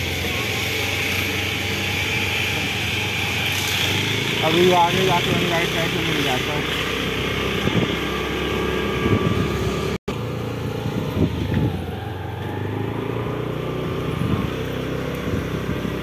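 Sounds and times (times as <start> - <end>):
motorbike engine running: 0.0 - 16.0
wind rumbling on microphone: 7.2 - 10.0, 10.7 - 12.9, 13.8 - 16.0.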